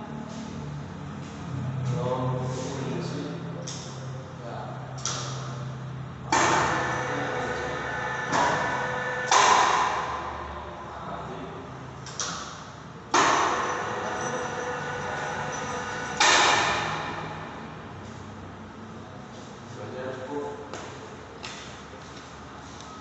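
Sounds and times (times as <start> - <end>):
ringing hum: 6.3 - 10.8, 12.4 - 18.5.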